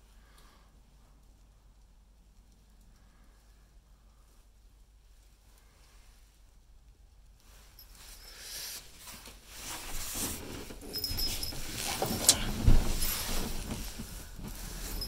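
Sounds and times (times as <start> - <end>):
shuffling and rustling: 7.3 - 15.0.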